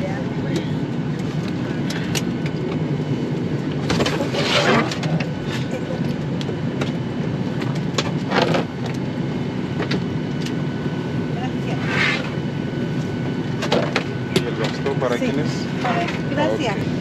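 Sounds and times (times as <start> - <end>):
airliner cabin hum: 0.0 - 17.0
rustling scrapes: 4.2 - 5.0.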